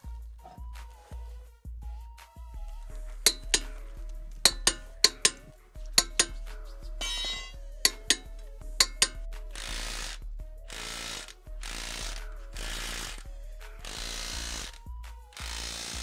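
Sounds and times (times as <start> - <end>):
cordless impact wrench bursts: 3.3 - 3.8, 4.5 - 6.4, 7.0 - 8.2, 8.8 - 16.0
wrench ratcheting: 3.3 - 3.9, 4.5 - 16.0
torque wrench clicking: 3.3 - 16.0.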